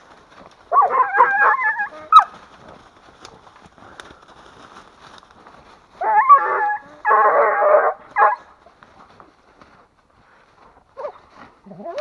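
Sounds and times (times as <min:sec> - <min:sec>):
rustling leaves: 0:00.0 - 0:12.0
harsh animal cry: 0:00.7 - 0:02.3, 0:06.0 - 0:08.4
dogs yelping: 0:00.7 - 0:02.4, 0:06.0 - 0:08.5, 0:11.0 - 0:12.0.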